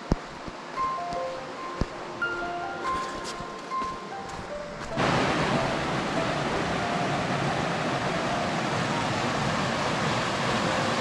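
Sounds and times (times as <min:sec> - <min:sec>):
stream flowing over stones: 0:05.0 - 0:11.0.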